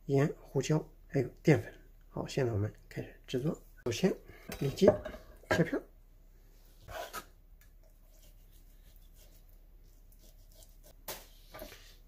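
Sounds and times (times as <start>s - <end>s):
knife scratching through meat: 6.8s - 7.3s, 8.0s - 12.0s.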